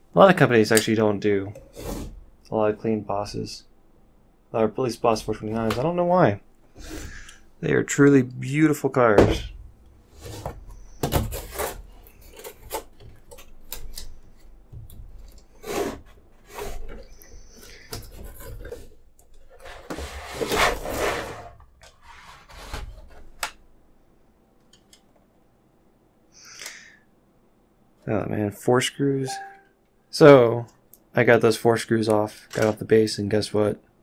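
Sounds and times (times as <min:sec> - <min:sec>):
cardboard and plastic scraping: 0:10.1 - 0:14.0, 0:15.6 - 0:23.4.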